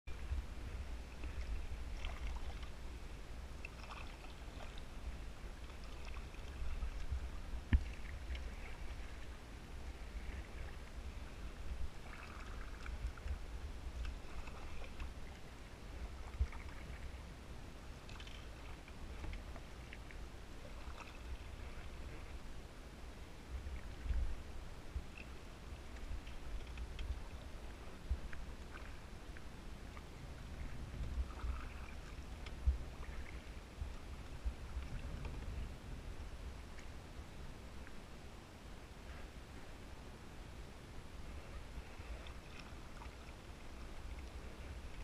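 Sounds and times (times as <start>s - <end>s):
kayak paddle strokes in water: 0.1s - 38.1s, 41.2s - 45.0s
steady low rumble: 0.1s - 45.0s.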